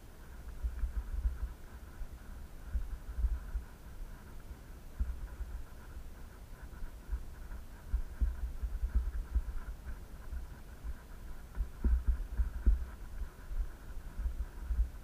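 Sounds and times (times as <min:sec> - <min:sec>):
faint steady hum: 0:00.0 - 0:15.0
microphone handling thumps: 0:11.5 - 0:15.0.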